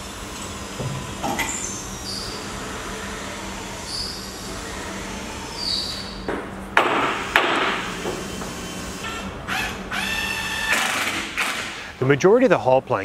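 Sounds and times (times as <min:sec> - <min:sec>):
steady low hum: 0:00.0 - 0:13.0
cordless drill whirring: 0:07.3 - 0:11.8.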